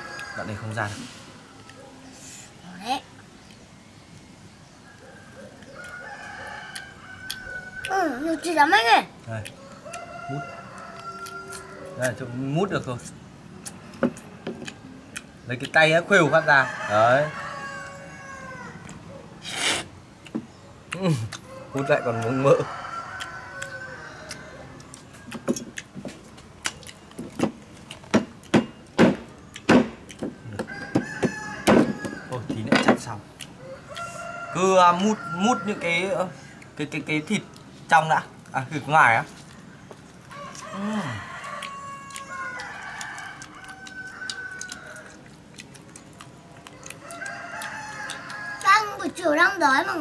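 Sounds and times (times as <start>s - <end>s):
rooster crowing: 0.0s - 1.9s, 5.0s - 8.2s, 9.6s - 12.4s, 16.1s - 18.9s, 21.4s - 25.6s, 30.5s - 32.7s, 33.6s - 36.5s, 40.3s - 45.2s, 46.7s - 49.0s
gnawing and sucking on bones: 22.1s - 28.5s, 39.4s - 49.0s.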